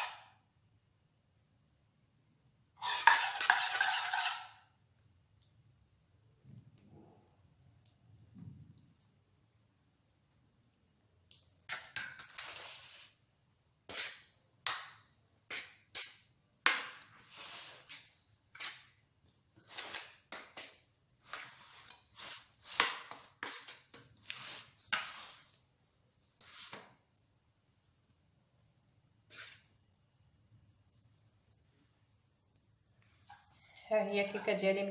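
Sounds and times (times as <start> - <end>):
metal spoon scraping cake pan: 2.8 - 4.6, 11.6 - 13.2, 13.8 - 14.4, 15.0 - 25.6
soft squelching of sauce: 4.8 - 14.4, 17.0 - 33.8.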